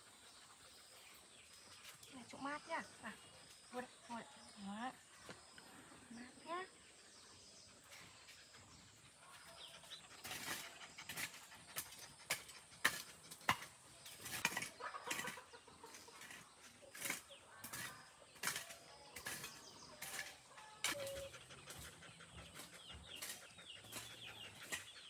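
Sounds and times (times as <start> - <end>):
chickens clucking: 8.9 - 25.0.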